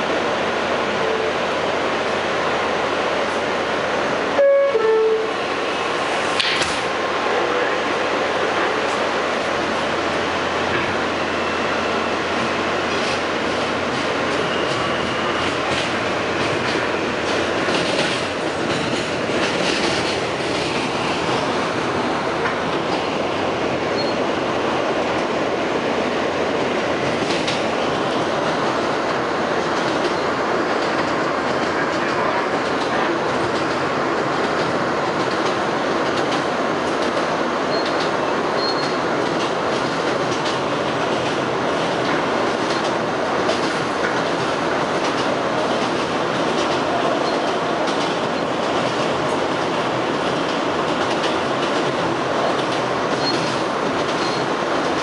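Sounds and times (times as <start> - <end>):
subway car running noise: 0.0 - 55.0
train wheels rumbling on rail: 0.0 - 55.0.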